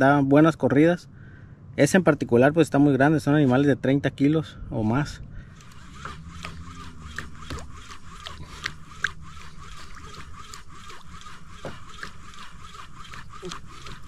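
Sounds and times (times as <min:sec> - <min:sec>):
small clicks: 0:05.6 - 0:14.0
water slapping against a hull: 0:05.6 - 0:14.0.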